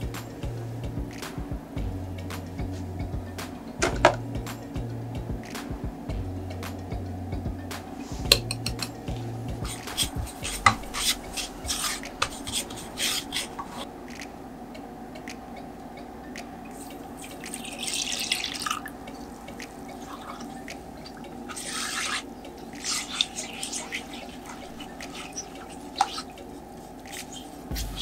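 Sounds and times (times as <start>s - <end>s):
stirring in pot: 8.3s - 13.9s, 16.8s - 28.0s
milk pouring: 16.9s - 22.2s.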